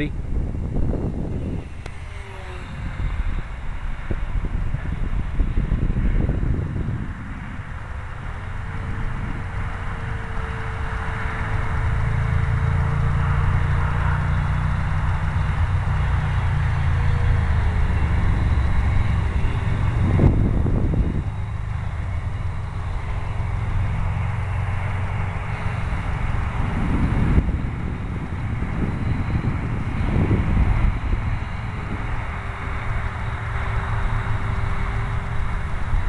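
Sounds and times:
electric motor and propeller whine: 0:00.0 - 0:36.0
wind buffeting microphone: 0:00.0 - 0:36.0.

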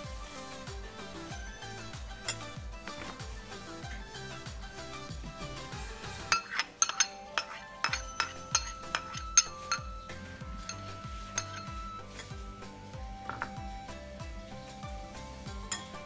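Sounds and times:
background music with steady beat: 0:00.0 - 0:16.0
metal spoon clinking on ceramic: 0:06.3 - 0:12.3.

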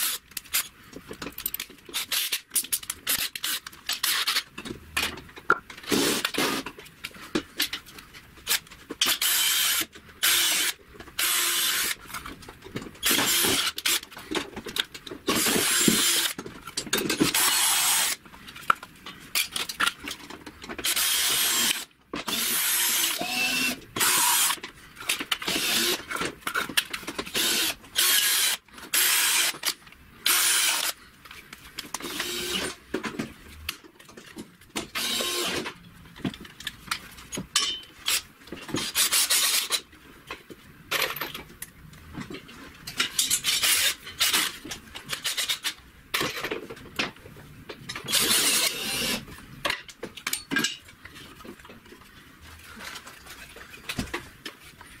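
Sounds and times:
cordless drill drilling into wood: 0:09.2 - 0:12.0, 0:15.4 - 0:16.3, 0:17.4 - 0:18.2, 0:20.8 - 0:24.6, 0:25.5 - 0:26.0, 0:27.3 - 0:29.6, 0:30.3 - 0:31.0, 0:32.1 - 0:32.8, 0:35.0 - 0:35.6, 0:48.1 - 0:49.2.

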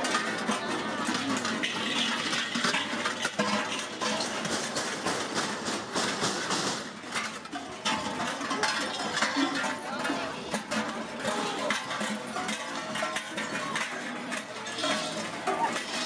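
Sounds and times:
cowbells clanging: 0:07.2 - 0:16.0.

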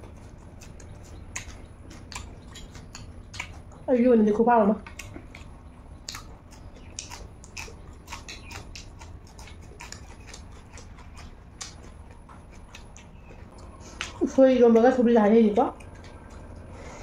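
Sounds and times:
wet lip smacks and chewing: 0:00.0 - 0:03.9, 0:04.8 - 0:14.2.

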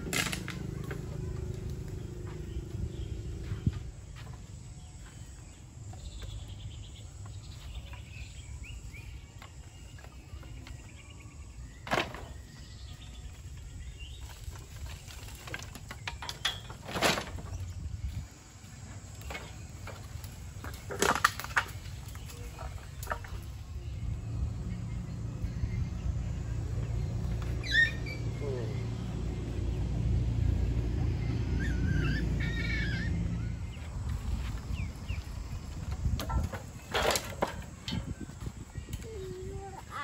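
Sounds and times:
low rumble: 0:00.0 - 0:05.6, 0:21.9 - 0:36.9
birds chirping: 0:00.0 - 0:40.0.

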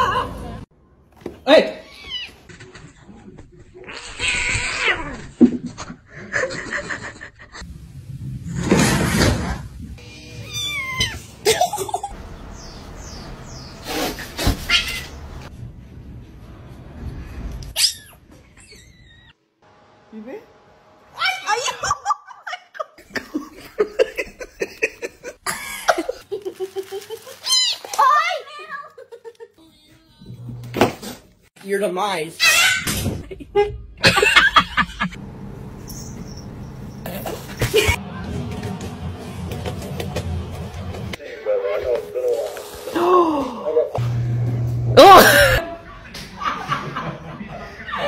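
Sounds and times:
cats and kittens meowing: 0:03.8 - 0:05.3, 0:10.0 - 0:11.4, 0:14.5 - 0:15.5.

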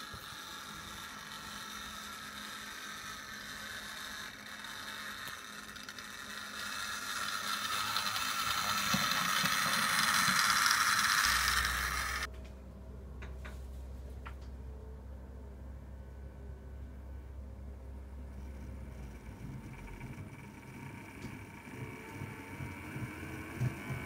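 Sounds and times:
model train motor whirring: 0:00.0 - 0:12.3, 0:18.3 - 0:24.0
low steady hum: 0:00.0 - 0:24.0.

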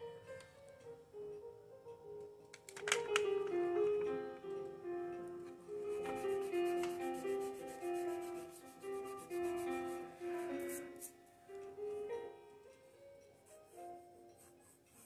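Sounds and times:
background music held notes: 0:00.0 - 0:15.0
hand rubbing paper: 0:05.8 - 0:11.2.

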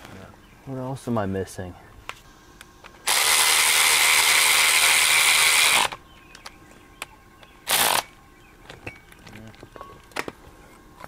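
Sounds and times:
cordless power driver running: 0:03.0 - 0:06.0, 0:07.6 - 0:08.2.

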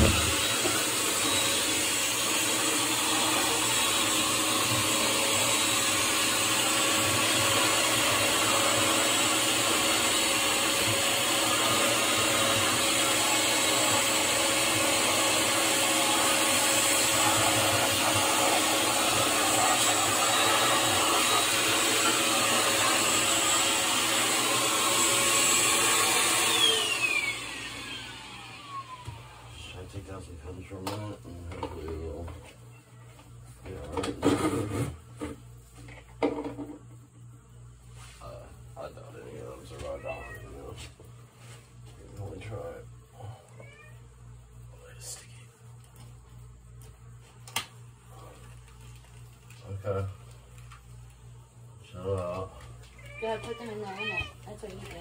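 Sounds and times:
electric motor whining: 0:00.0 - 0:29.4.

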